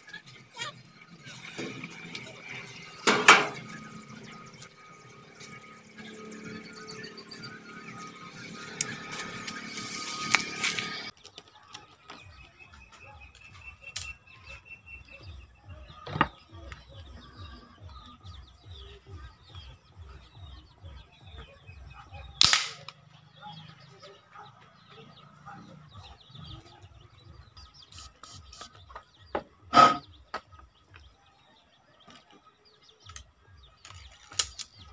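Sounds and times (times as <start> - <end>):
toy gun shot: 22.4 - 23.0.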